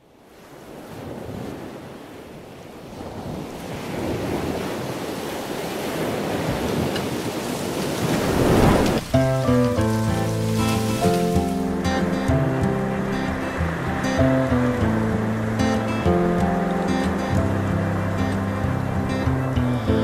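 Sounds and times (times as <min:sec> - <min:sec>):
waterfall roaring: 0:06.0 - 0:20.0
music: 0:09.1 - 0:20.0.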